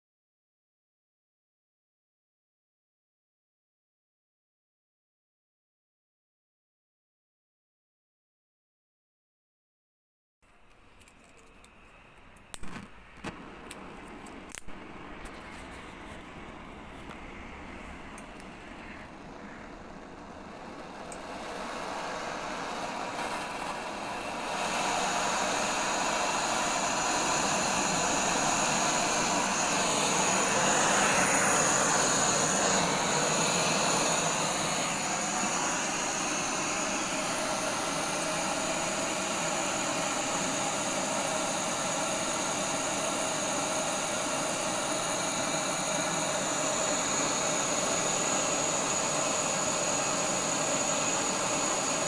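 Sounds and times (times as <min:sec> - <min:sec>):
blowtorch hissing flame: 0:12.5 - 0:52.0.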